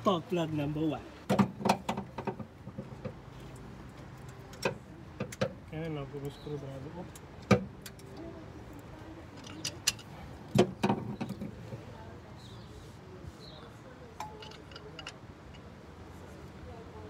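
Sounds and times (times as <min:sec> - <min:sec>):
socket wrench clinking on metal: 0:09.4 - 0:10.1, 0:14.2 - 0:15.7.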